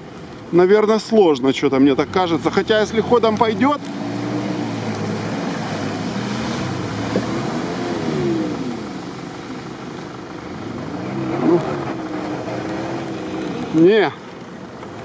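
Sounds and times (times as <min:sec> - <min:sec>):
engine revving under load: 0:01.9 - 0:13.9
water splashing: 0:02.0 - 0:15.0.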